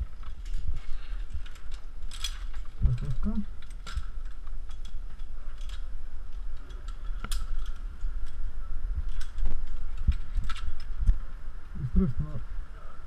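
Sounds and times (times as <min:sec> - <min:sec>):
metallic clicks of climbing hardware: 0:00.0 - 0:11.2
steady low rumble: 0:00.0 - 0:13.0.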